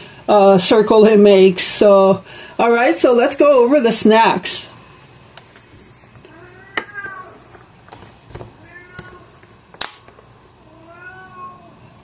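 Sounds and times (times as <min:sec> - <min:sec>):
cat meowing faintly: 0:06.3 - 0:07.5, 0:08.6 - 0:09.4, 0:10.6 - 0:11.9.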